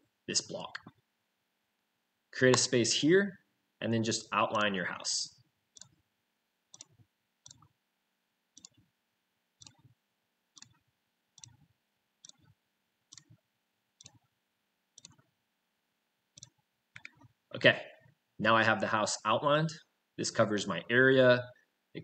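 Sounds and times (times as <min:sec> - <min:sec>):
faint mouse clicks: 0:15.0 - 0:15.3.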